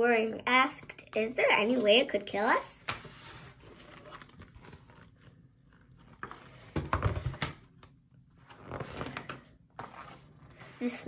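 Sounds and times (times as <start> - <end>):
book pages turning: 2.8 - 10.7.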